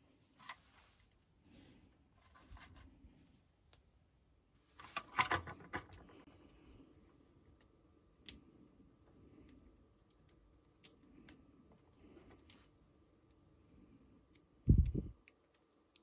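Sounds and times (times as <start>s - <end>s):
plastic toy truck clicks and rattles: 4.8s - 6.1s.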